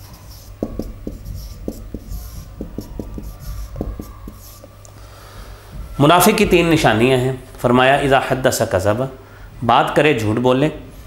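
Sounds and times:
marker pen writing on whiteboard: 0.0 - 4.9.

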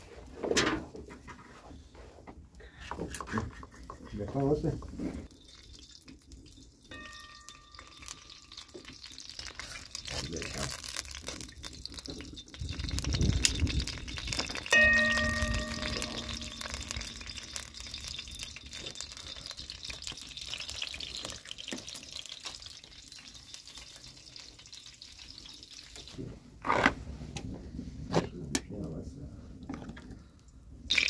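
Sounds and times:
wood fire crackling: 3.8 - 28.1
food sizzling in iron pan: 5.3 - 26.2
metallic clang: 14.8 - 17.6.

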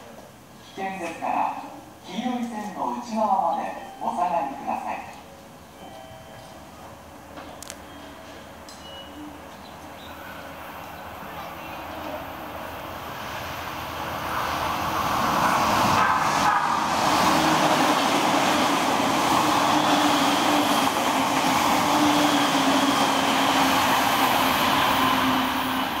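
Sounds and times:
train humming tone: 1.0 - 26.0
train wheels rushing on rails: 7.2 - 26.0.

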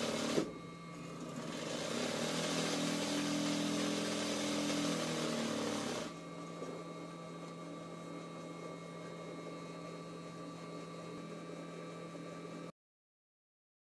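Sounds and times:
embroidery machine stitching fast: 0.0 - 6.2
electric hum with faint whine: 0.0 - 12.7.

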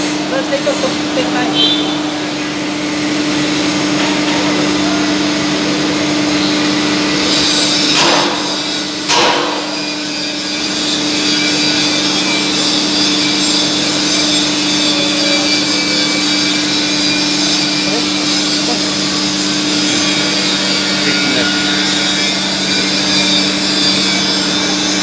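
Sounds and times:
loud noisy bursts: 0.0 - 25.0
machinery humming: 0.0 - 25.0
rasping tool noise: 7.1 - 25.0.

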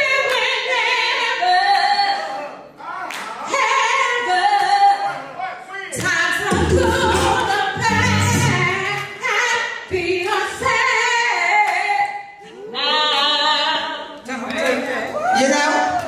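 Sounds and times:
woman singing into microphone: 6.0 - 14.4.

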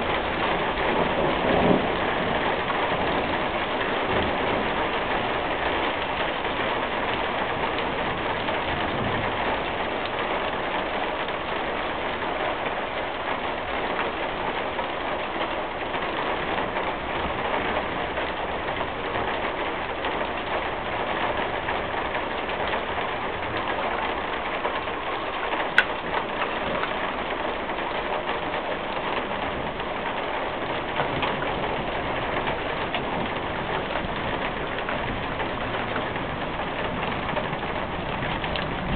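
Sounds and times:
steady rain hiss: 0.0 - 38.9.

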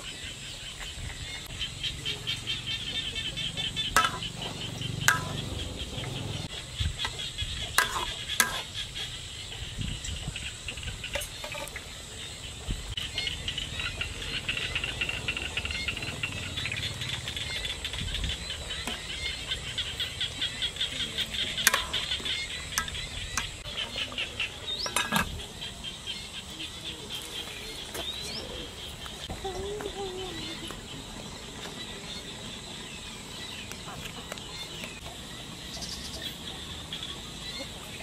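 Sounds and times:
insects and birds chirping: 0.0 - 38.0
metal ladle clinking on pot: 4.0 - 4.3, 5.1 - 5.4, 7.8 - 8.6, 21.7 - 23.5.

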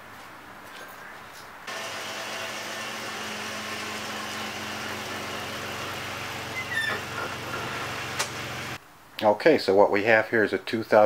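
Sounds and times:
car engine humming: 1.7 - 8.8
brief high squeak: 6.5 - 7.1.

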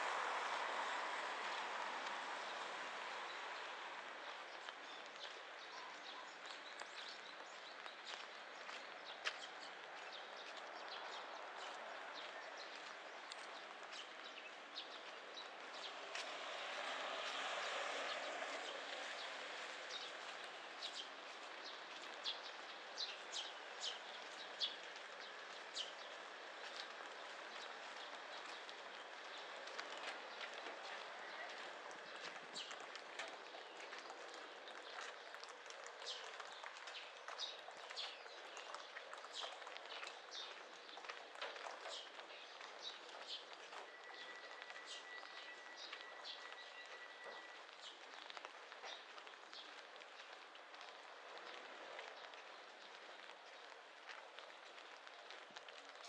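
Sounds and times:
rain hiss: 0.0 - 5.6
steady rain falling: 0.0 - 56.0
faint footsteps: 0.1 - 56.0
small birds chirping: 3.2 - 16.4, 17.3 - 56.0.

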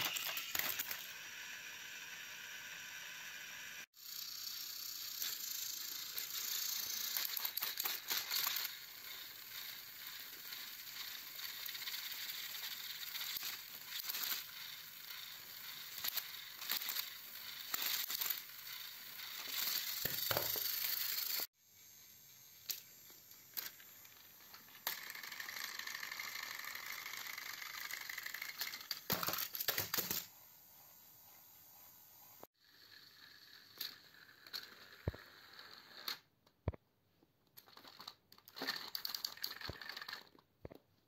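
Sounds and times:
plastic wheels clicking and rattling: 0.0 - 1.2, 4.0 - 21.5, 22.7 - 30.3, 32.7 - 36.3, 37.5 - 40.9
toy train motor whir: 0.0 - 36.3, 37.6 - 40.5
plastic toy trains being handled: 5.2 - 21.5, 22.6 - 30.3, 37.3 - 41.0.

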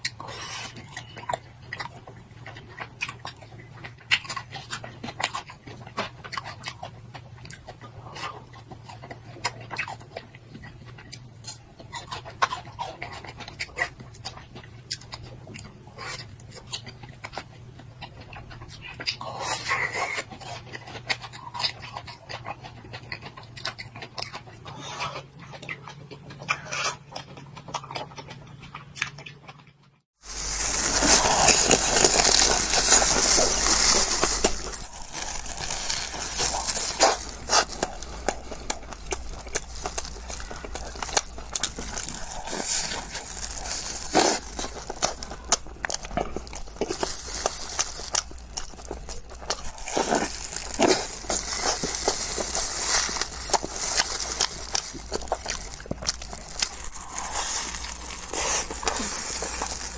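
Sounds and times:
biting and chewing ice cream bar: 0.0 - 59.9
wet sucking and biting: 30.2 - 59.9.

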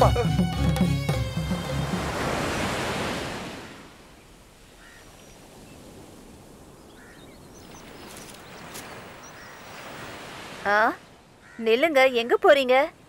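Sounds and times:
sea surf washing in: 0.9 - 6.9, 7.8 - 10.8
faint bird calls: 4.7 - 5.9, 6.8 - 10.0, 10.9 - 11.8.

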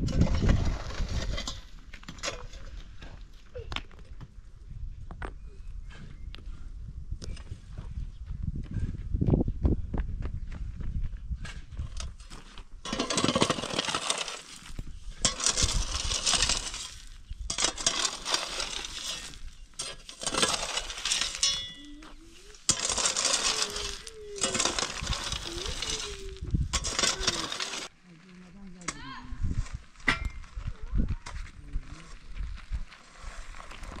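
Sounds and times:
stones and gravel scraping: 0.0 - 3.4, 11.5 - 28.0, 29.4 - 34.0
mattock hacking stony soil: 11.4 - 27.9.

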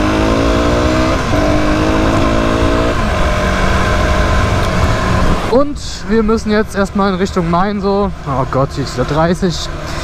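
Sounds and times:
motorcycle engine accelerating: 0.0 - 5.7.

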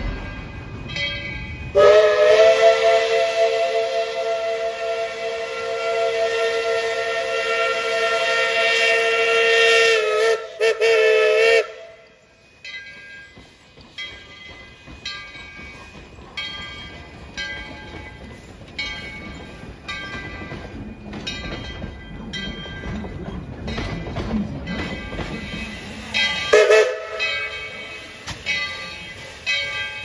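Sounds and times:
locomotive bell ringing: 0.0 - 3.0, 11.6 - 30.0
train coaches rumbling by: 0.0 - 30.0
steam whistle chord: 1.7 - 11.8, 26.5 - 27.3.

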